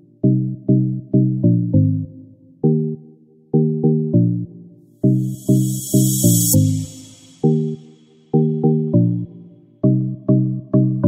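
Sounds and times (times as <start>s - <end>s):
hissing sweep: 5.3s - 8.0s.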